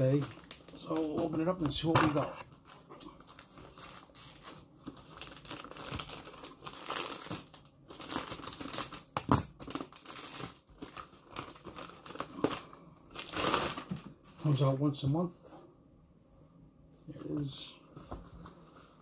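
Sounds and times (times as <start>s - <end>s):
plastic bag crinkling and tearing: 0.0s - 14.7s.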